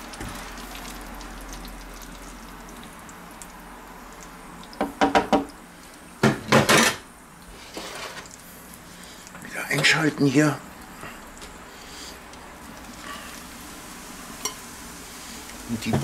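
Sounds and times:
hot fat sizzling in a pan: 0.0s - 16.0s
utensils clattering on steel drainer: 6.3s - 7.0s.

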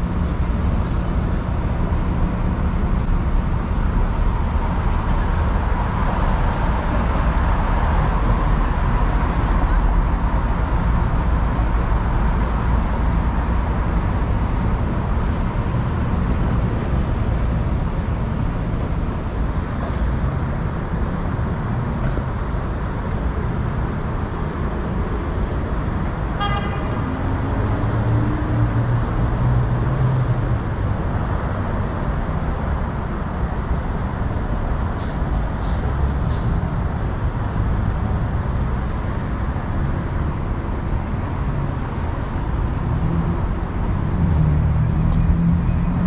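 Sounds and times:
traffic rumble: 0.0s - 46.0s
vehicle engine drone: 0.0s - 46.0s
car horn toot: 26.4s - 27.0s.

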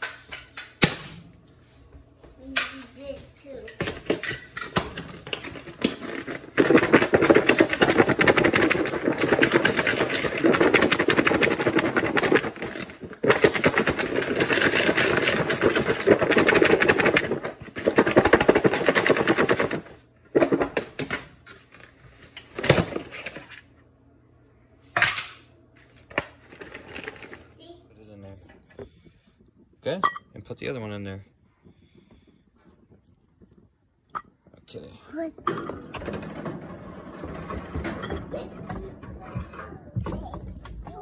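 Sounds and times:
vegetables rattling in covered bowl: 4.1s - 20.8s, 26.1s - 27.6s.

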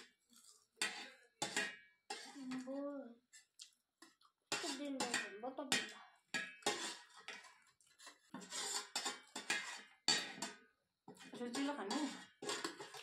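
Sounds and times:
spoons clinking on metal plates: 0.8s - 2.7s, 3.4s - 13.0s.

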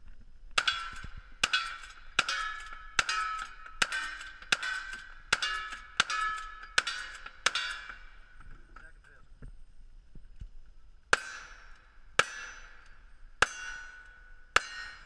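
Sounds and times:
steel target clanging: 0.6s - 8.4s, 11.1s - 15.0s.

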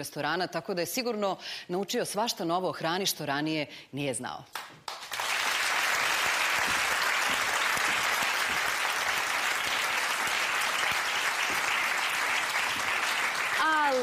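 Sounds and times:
audience applauding: 4.8s - 14.0s.

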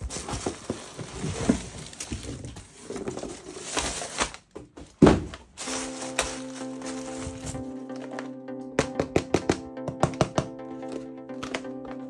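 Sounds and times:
packaging rustling: 0.0s - 4.5s, 5.4s - 8.2s
plastic pieces clicking and tapping: 8.8s - 12.0s.

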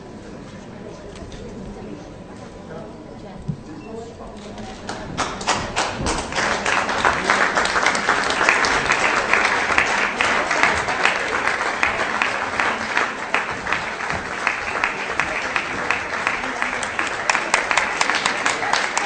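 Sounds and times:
applause: 4.8s - 19.0s.

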